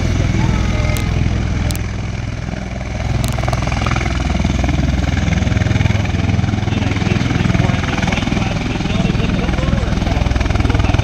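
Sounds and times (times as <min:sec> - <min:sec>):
propeller plane engines taxiing: 0:00.0 - 0:11.0.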